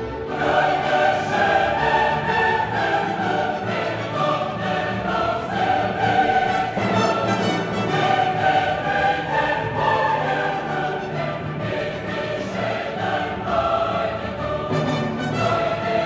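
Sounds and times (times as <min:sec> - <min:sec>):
choir singing: 0:00.0 - 0:16.0
orchestral music: 0:00.0 - 0:16.0.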